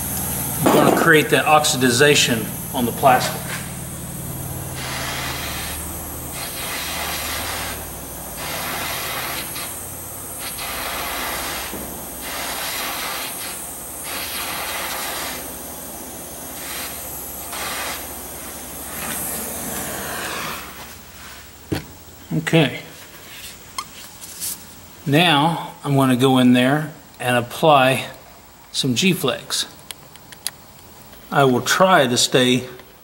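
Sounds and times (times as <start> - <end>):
gas torch hissing: 0.0 - 24.0.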